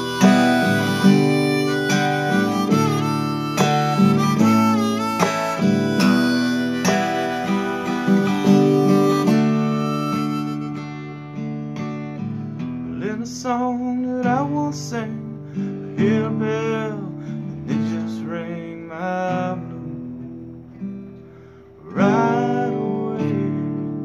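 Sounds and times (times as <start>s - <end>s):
harmonica with bending notes: 0.0s - 11.9s
acoustic guitar strumming: 0.0s - 24.0s.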